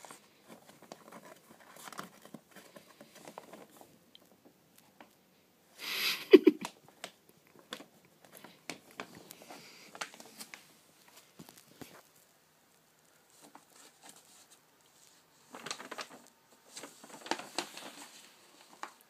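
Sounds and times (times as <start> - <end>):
kitten scrabbling in paper wrapper: 15.3 - 19.0.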